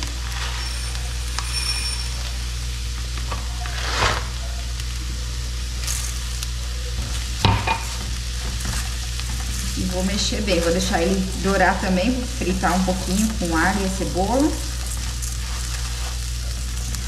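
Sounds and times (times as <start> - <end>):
rice sizzling in a pan: 0.0 - 17.0
spoon scraping a pan: 7.0 - 17.0.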